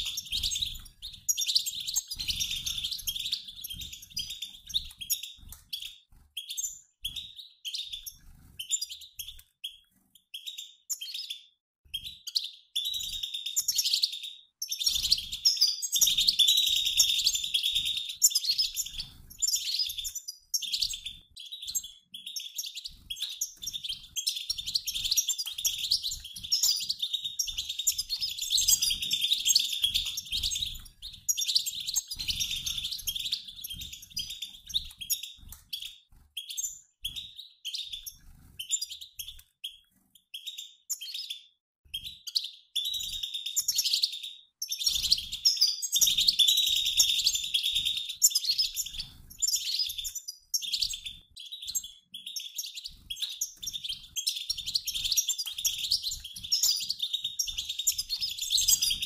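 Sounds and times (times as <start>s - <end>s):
goldfinch flock twittering: 0.0s - 9.4s, 12.4s - 39.4s, 42.4s - 59.0s.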